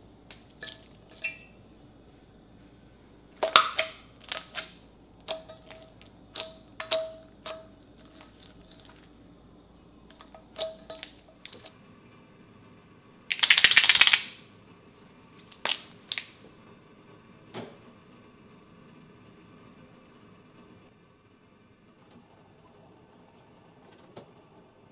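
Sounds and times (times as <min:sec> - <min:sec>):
loud rapid rattle: 0:13.3 - 0:14.3
sharp clicks: 0:13.3 - 0:14.3.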